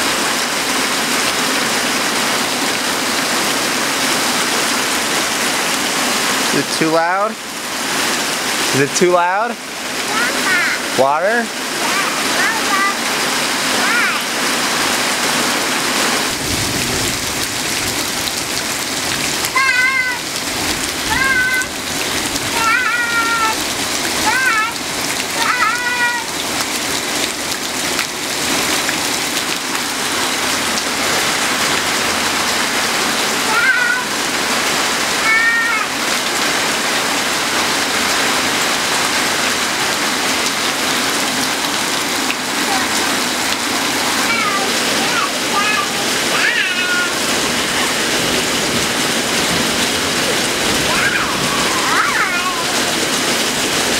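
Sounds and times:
rain falling on ground: 0.0 - 53.9
small child calling: 10.1 - 11.0, 11.8 - 14.4, 19.4 - 20.4, 21.0 - 26.4, 33.4 - 34.3, 35.1 - 36.1, 42.6 - 43.0, 44.1 - 48.0, 50.7 - 53.0
high-pitched cry: 19.5 - 20.3, 21.1 - 21.8, 22.6 - 23.6, 25.4 - 26.4, 33.4 - 34.2, 35.2 - 36.0, 44.2 - 48.0, 50.8 - 53.0.

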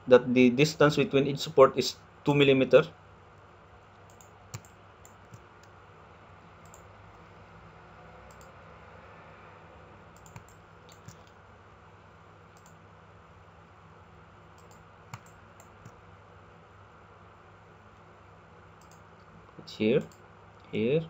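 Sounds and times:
computer mouse clicks: 4.0 - 5.8, 6.6 - 6.9, 8.3 - 8.6, 10.2 - 11.4, 12.6 - 12.8, 14.6 - 16.0, 18.8 - 19.1.

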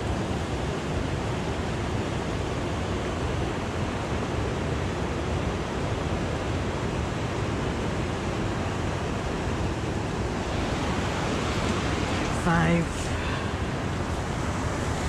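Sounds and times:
steady rushing noise: 6.8 - 15.0.

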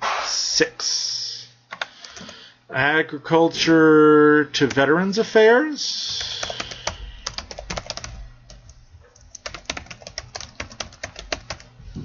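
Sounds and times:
typing on keyboard: 6.1 - 11.7.

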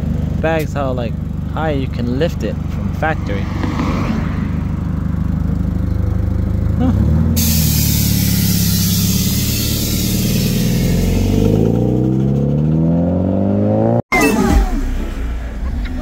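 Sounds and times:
car engine idling and revving: 0.0 - 16.0
air suspension hiss: 7.4 - 11.4.

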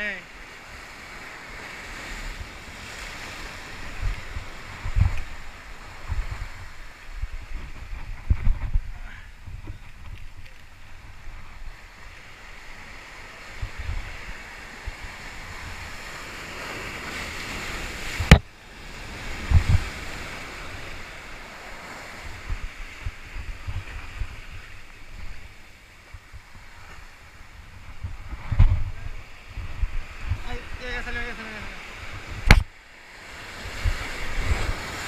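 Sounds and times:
surf breaking against breakwater: 0.0 - 35.0
wind thumping on microphone: 1.9 - 12.7, 13.3 - 31.3, 31.9 - 32.8, 33.5 - 35.0
sharp click: 32.4 - 32.7.

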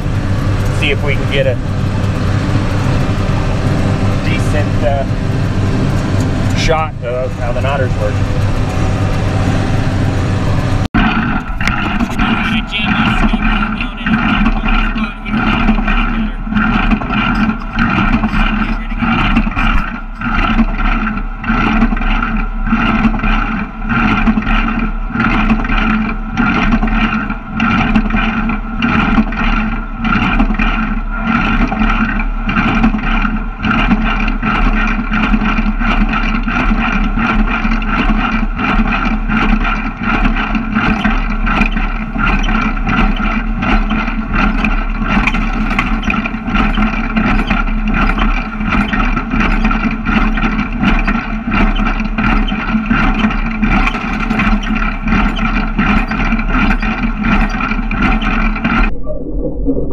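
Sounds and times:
mechanical drone: 0.0 - 59.9
baler clattering: 37.2 - 58.9.

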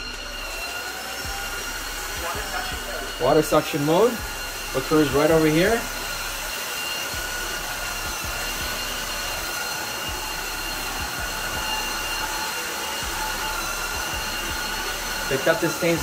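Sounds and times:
vacuum mop motor whine: 0.0 - 16.0.

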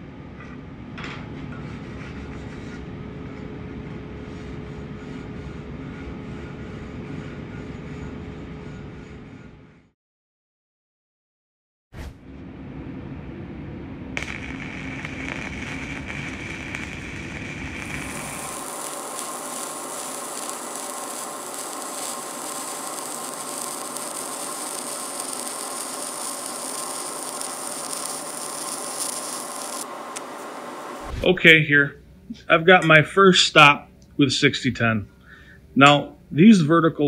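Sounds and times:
arc welding hiss: 14.2 - 31.4.

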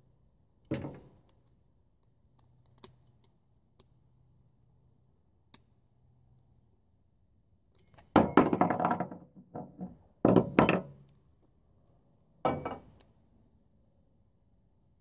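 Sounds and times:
hard knocks and thuds rattling: 8.2 - 11.0.

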